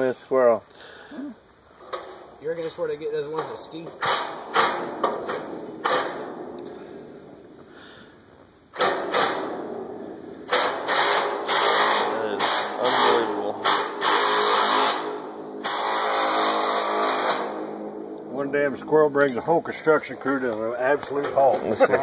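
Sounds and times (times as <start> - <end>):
loud machinery noise: 3.3 - 6.9, 8.8 - 21.7.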